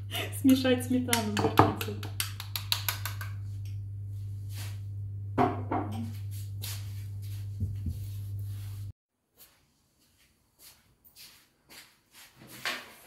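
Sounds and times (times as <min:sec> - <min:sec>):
steady low hum: 0:00.0 - 0:08.9.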